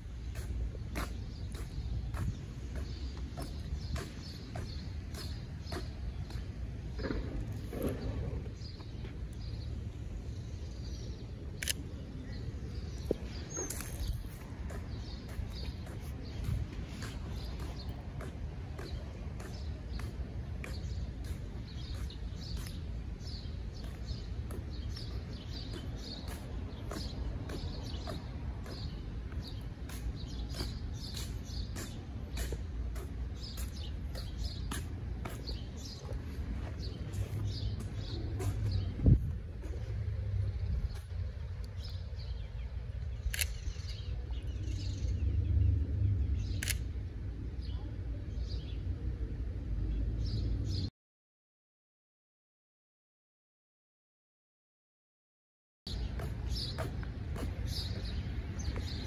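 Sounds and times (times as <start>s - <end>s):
footsteps on pavement: 0.0s - 45.1s, 55.9s - 59.0s
wind rumbling on microphone: 0.0s - 47.6s
sharp clicks: 11.6s - 11.9s, 43.2s - 44.0s, 46.6s - 46.9s.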